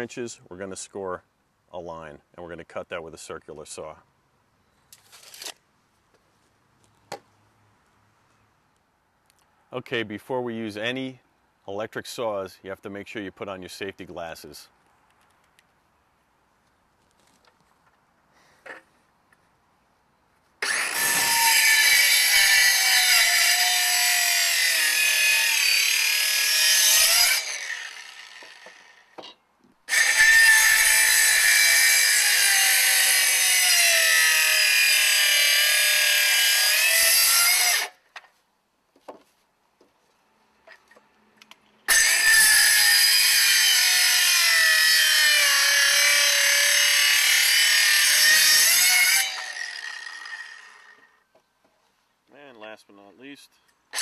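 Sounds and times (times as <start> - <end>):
circular saw cutting wood: 20.6 - 29.2, 29.9 - 38.0, 41.9 - 51.2.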